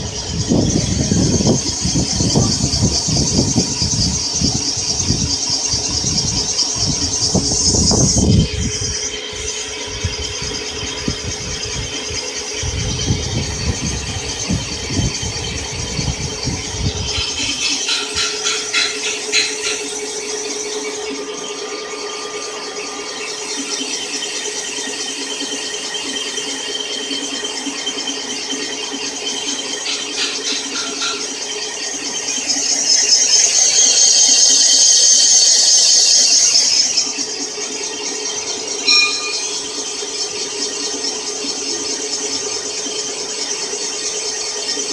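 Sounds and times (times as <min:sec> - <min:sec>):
machine hum: 0:00.0 - 0:44.9
high thin cutting squeal: 0:16.8 - 0:25.2, 0:29.7 - 0:37.3, 0:38.8 - 0:40.2.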